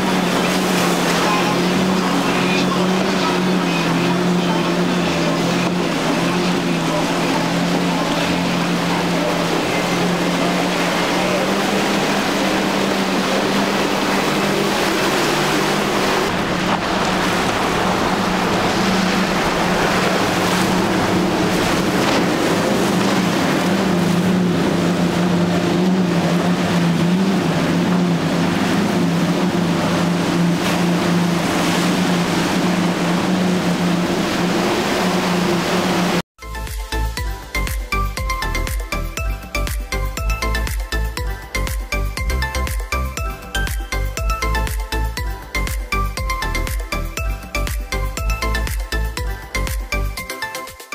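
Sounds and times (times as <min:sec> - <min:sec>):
hull rushing through water: 0:00.0 - 0:36.3
outboard engines droning: 0:00.0 - 0:50.3.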